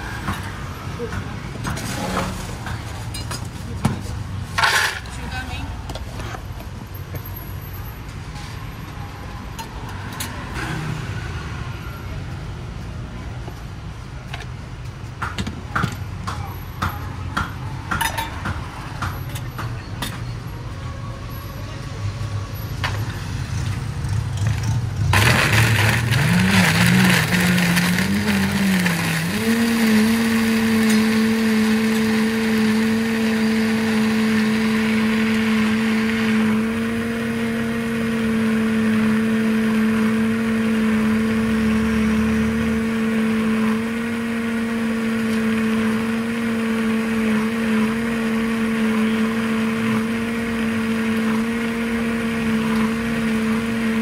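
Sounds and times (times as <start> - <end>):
blender whining: 25.2 - 54.0.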